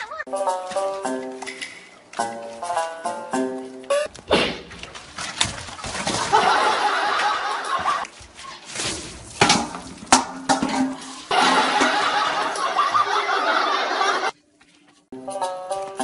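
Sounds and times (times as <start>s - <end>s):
people laughing: 6.2s - 8.1s, 11.3s - 14.4s.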